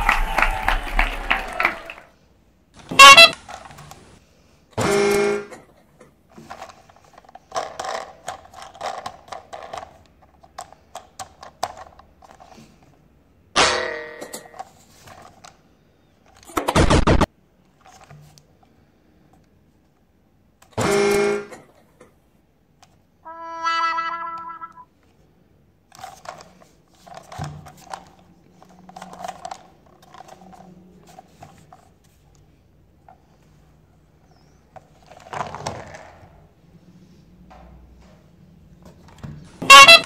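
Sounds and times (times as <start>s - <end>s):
plastic toy trains clicking: 2.8s - 4.2s, 6.0s - 13.0s, 25.9s - 32.4s, 39.6s - 40.0s
electronic horn toots: 2.9s - 3.5s, 4.8s - 5.6s, 20.8s - 21.6s, 23.3s - 24.9s, 39.6s - 40.0s.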